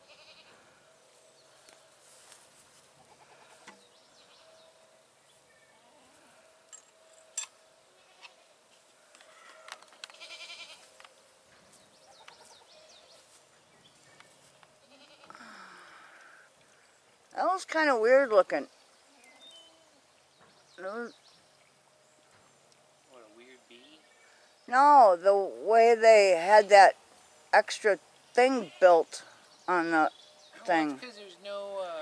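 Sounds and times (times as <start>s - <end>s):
goat bleating: 0.0s - 0.6s, 3.0s - 3.7s, 8.0s - 8.5s, 9.4s - 10.9s, 14.8s - 15.5s.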